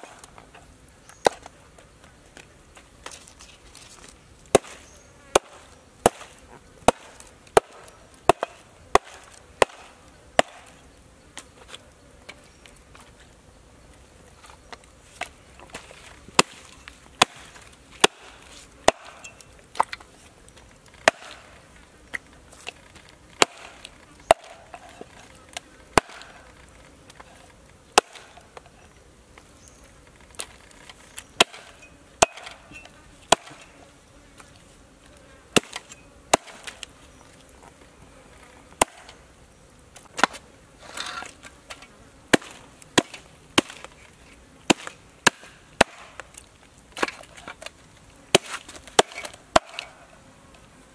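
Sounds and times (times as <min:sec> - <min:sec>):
cleaver chopping on wooden board: 0:04.5 - 0:06.3, 0:06.9 - 0:10.7, 0:16.4 - 0:19.2, 0:21.0 - 0:21.4, 0:23.4 - 0:24.7, 0:26.0 - 0:26.4, 0:28.0 - 0:28.4, 0:31.4 - 0:32.6, 0:33.3 - 0:33.6, 0:35.6 - 0:36.8, 0:38.8 - 0:39.1, 0:48.3 - 0:50.0.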